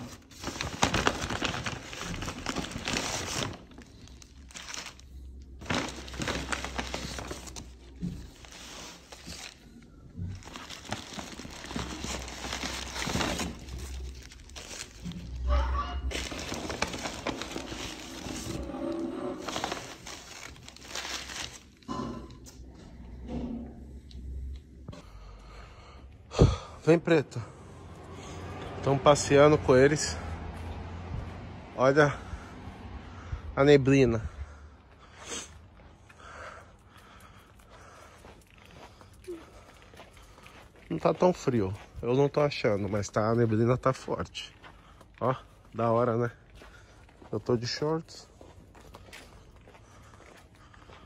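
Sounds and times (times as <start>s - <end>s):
paper wrappers crinkling: 0.0s - 21.9s.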